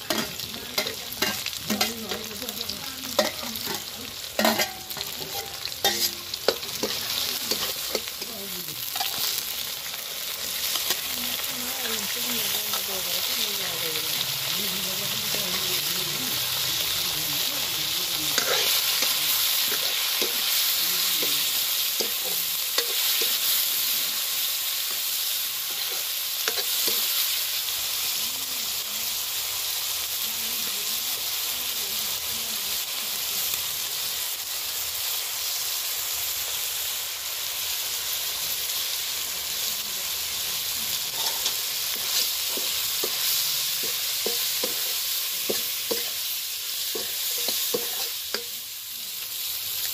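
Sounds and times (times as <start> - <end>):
metal spoon scraping a wok: 0.0 - 14.4, 15.0 - 28.1, 40.9 - 48.7
fish frying in hot oil: 0.0 - 49.9.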